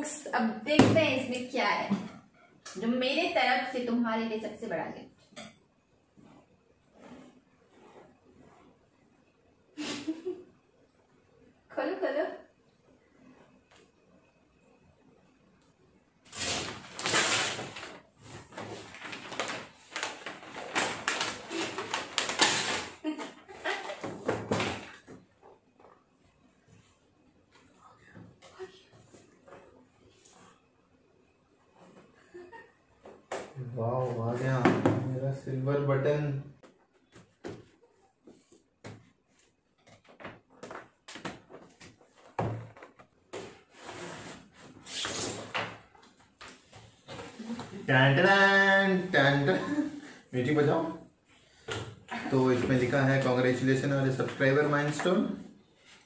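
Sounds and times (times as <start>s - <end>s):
wrapping paper tearing and crumpling: 16.3s - 23.1s.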